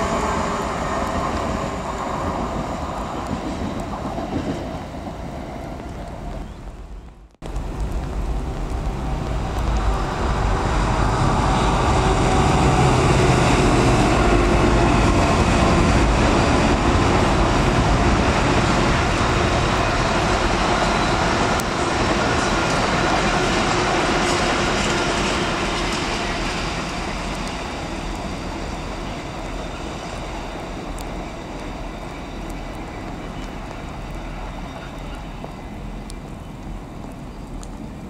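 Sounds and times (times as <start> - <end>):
freight train rumbling past: 0.0 - 37.0
rain hissing: 0.0 - 38.0
faint ticks: 36.0 - 37.8.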